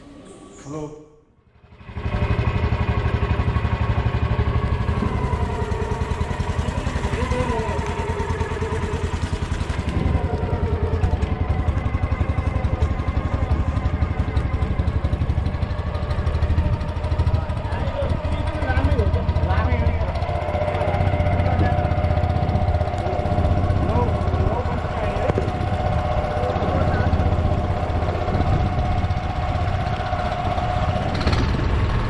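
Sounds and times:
motorboat engine chugging: 1.6 - 32.0.

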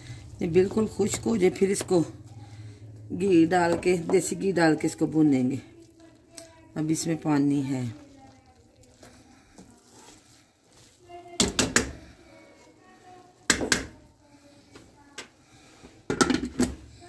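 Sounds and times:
wooden spatula knocking on pan: 11.4 - 12.0, 13.5 - 14.0.

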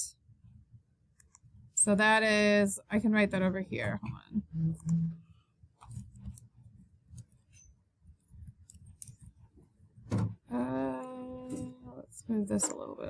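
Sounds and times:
person humming: 4.4 - 5.2.

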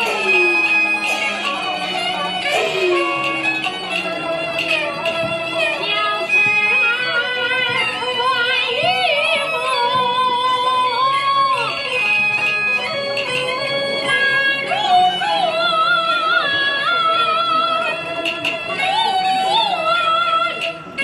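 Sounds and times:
instrumental accompaniment: 0.0 - 21.0.

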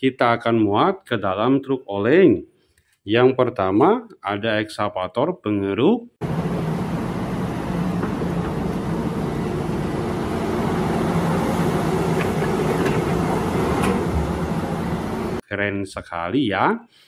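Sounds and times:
excavator diesel engine under load: 6.2 - 15.4.

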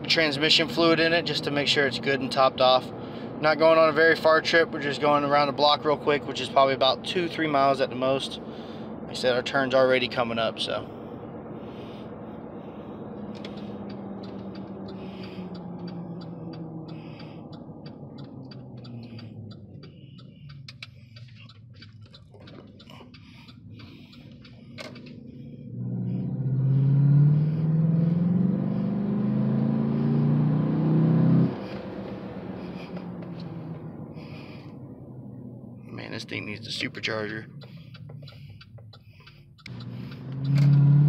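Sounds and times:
turn signal ticking: 11.2 - 41.0
truck engine revving: 11.4 - 41.0.

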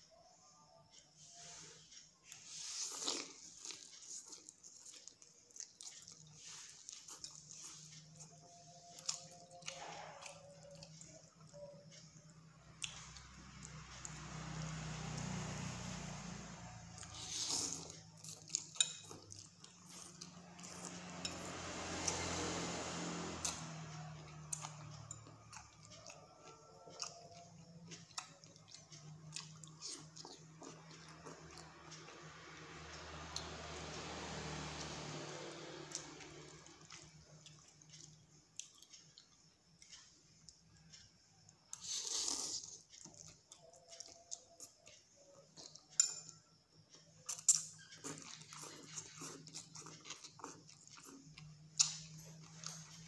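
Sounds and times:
person slurping and chewing noodles: 2.3 - 11.6, 16.9 - 23.6, 24.5 - 32.2, 41.7 - 44.7, 47.3 - 53.0
metal spoon clinking on glass bowl: 46.0 - 46.4.

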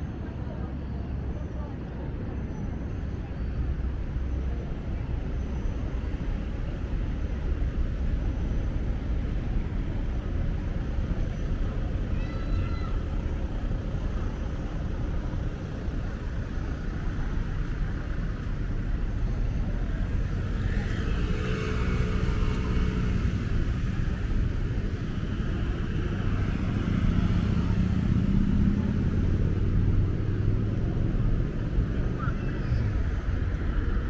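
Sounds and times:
low traffic rumble: 0.0 - 34.0
cars passing: 2.7 - 34.0
loud car engine: 15.6 - 34.0.

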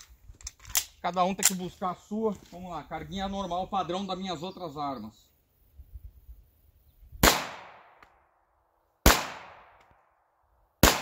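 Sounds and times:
pistol shots with echo: 7.2 - 8.0, 9.0 - 9.9, 10.8 - 11.0.

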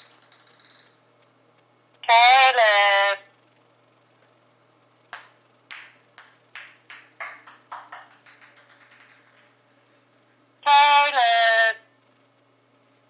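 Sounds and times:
ball bouncing on tile floor: 0.0 - 1.0, 5.1 - 10.4.

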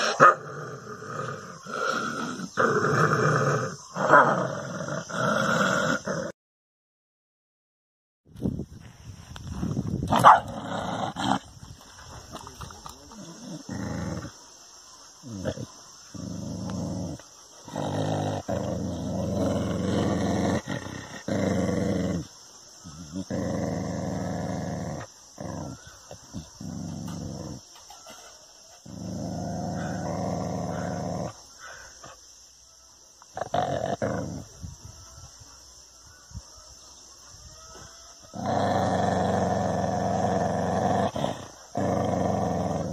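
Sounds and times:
dog growling low: 0.0 - 6.4, 10.4 - 11.6, 12.6 - 14.4, 15.2 - 27.7, 28.8 - 31.9, 33.4 - 34.7, 38.3 - 42.9.

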